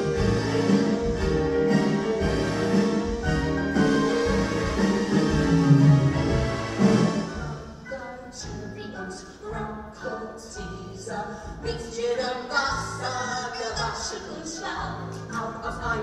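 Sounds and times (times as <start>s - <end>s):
instrumental accompaniment: 0.0s - 11.9s.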